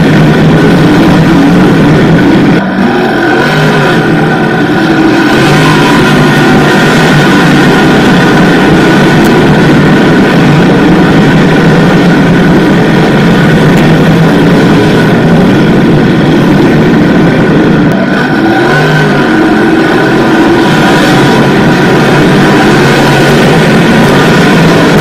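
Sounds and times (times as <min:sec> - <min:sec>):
race car engines running hard: 0:00.0 - 0:25.0.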